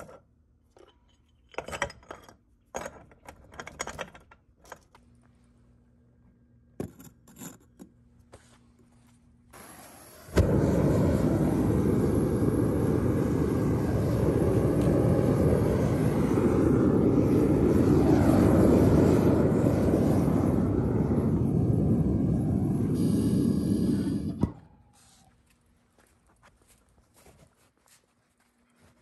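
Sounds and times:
burner lighting pop: 9.6s - 11.2s
burner roaring: 9.6s - 24.6s
gas hissing: 9.6s - 24.6s.

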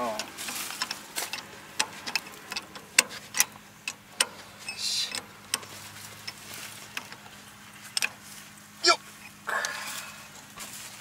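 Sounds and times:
wrench clicking on metal: 0.0s - 7.2s.

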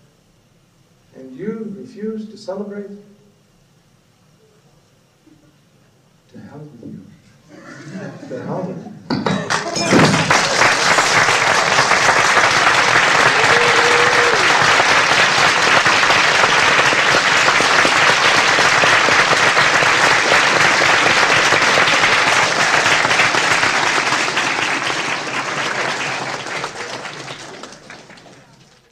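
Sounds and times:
large audience applauding: 9.3s - 28.9s.

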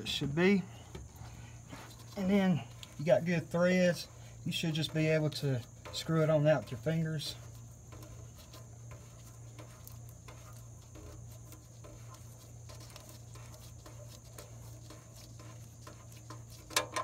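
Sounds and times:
steady low hum: 0.0s - 17.0s
drain plug ticks and scrapes: 7.9s - 17.0s.

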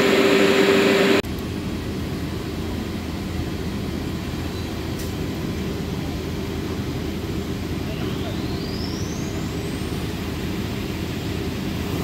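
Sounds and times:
dust collector blower humming: 0.0s - 1.2s.

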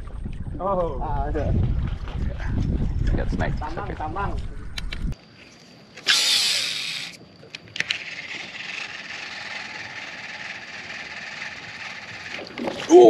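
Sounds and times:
fishing line whizzing off reel: 6.0s - 7.2s, 7.8s - 12.9s.

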